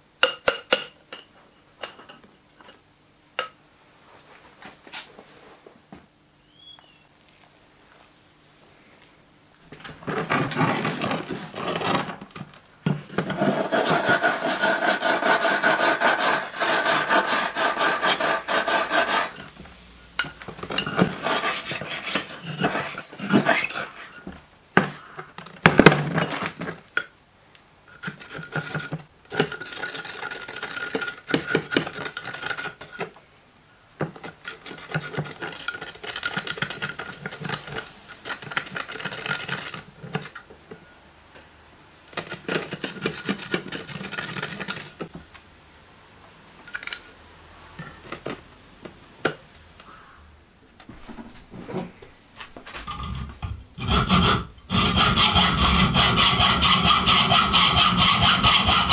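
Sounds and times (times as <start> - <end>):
hand file rasping on metal: 13.1 - 19.5, 20.8 - 24.2, 42.2 - 44.8, 52.9 - 58.9.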